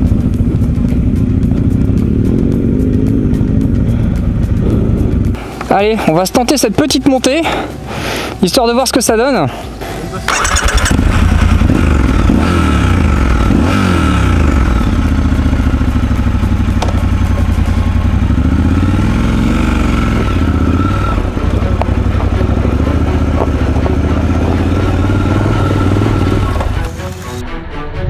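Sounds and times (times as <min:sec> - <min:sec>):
motorcycle engine under load: 0:10.1 - 0:27.0.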